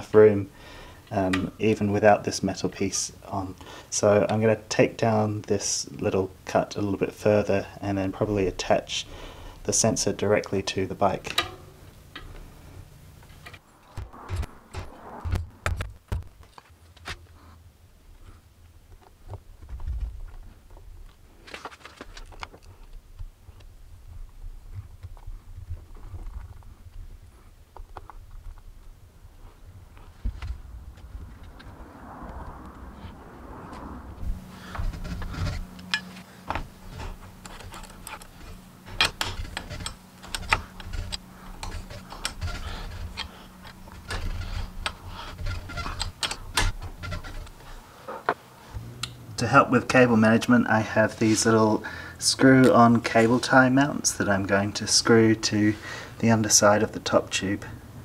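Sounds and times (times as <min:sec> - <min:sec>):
low steady hum: 0:00.0 - 0:58.0
metal clicks and knocks: 0:11.3 - 0:12.4, 0:34.7 - 0:48.4.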